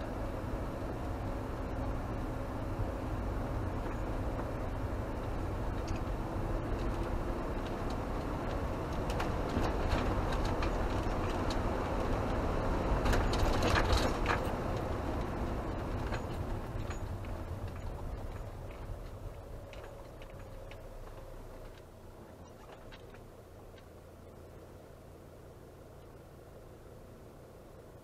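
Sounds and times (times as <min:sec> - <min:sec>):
engine and tyre rumble: 0:00.0 - 0:28.0
clicks and rattles: 0:13.0 - 0:14.9.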